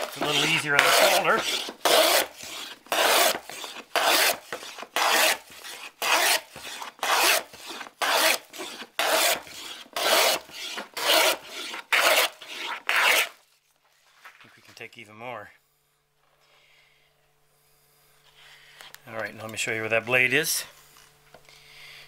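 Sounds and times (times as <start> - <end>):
hand plane rasping on wood: 0.0 - 13.4.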